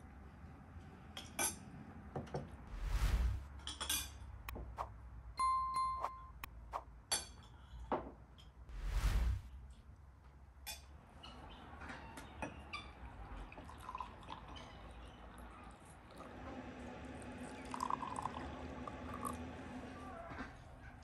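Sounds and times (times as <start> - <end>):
whoosh sound effect: 2.7 - 3.5, 8.7 - 9.5
bell-like ding: 5.4 - 6.4.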